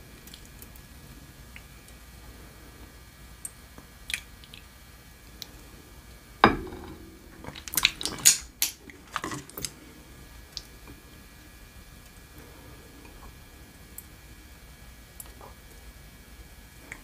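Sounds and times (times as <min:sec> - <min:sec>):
ceramic bowl set down: 0:06.4 - 0:08.2.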